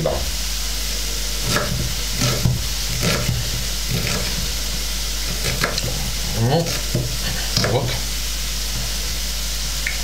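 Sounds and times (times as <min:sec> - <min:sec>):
vegetables sizzling in oil: 0:00.4 - 0:09.8
knife chopping on wooden board: 0:01.4 - 0:08.0.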